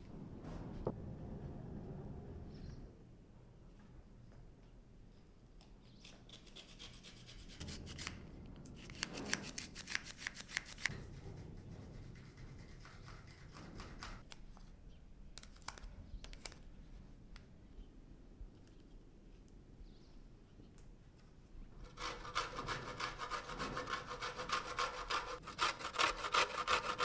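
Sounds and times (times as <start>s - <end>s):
hands rubbing and scraping food: 6.0s - 10.9s.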